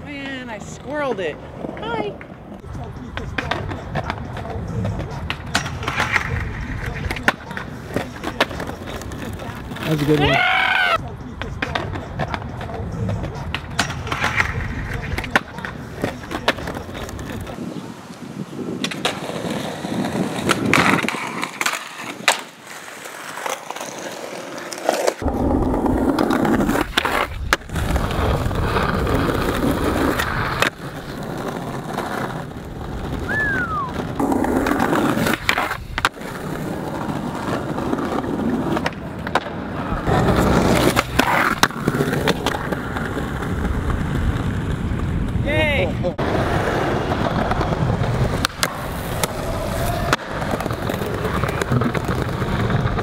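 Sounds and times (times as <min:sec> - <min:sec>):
skateboard wheels rolling on concrete: 0:00.0 - 0:53.0
skateboard clacks: 0:01.4 - 0:17.6, 0:18.7 - 0:53.0.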